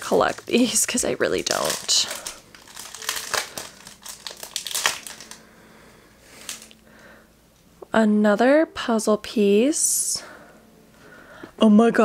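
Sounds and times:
foil wrapper crinkling: 0:00.0 - 0:05.5, 0:06.2 - 0:06.8.

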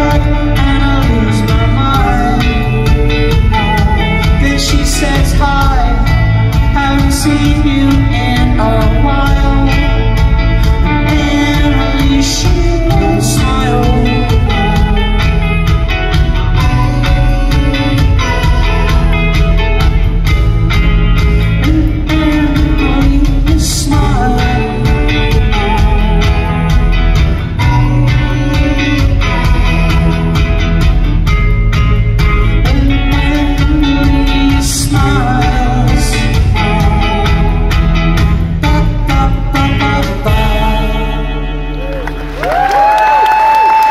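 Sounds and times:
live rock band playing: 0:00.0 - 0:43.9.

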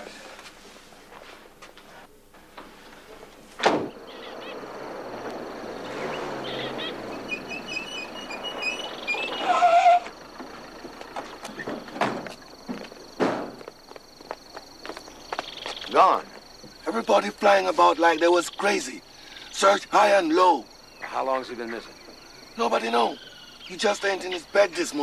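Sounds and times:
insect drone: 0:02.2 - 0:25.0
bird chirps: 0:03.9 - 0:12.6, 0:15.1 - 0:16.0, 0:18.0 - 0:19.6, 0:20.6 - 0:24.6
sharp knock: 0:13.2 - 0:13.6.

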